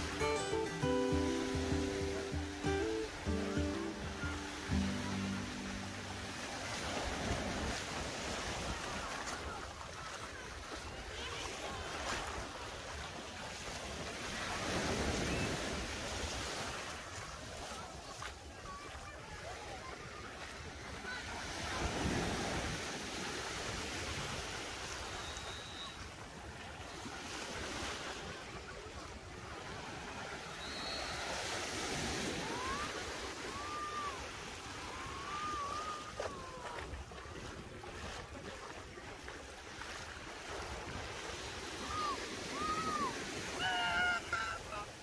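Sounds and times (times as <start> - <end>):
sea waves washing onto beach: 0.0 - 45.0.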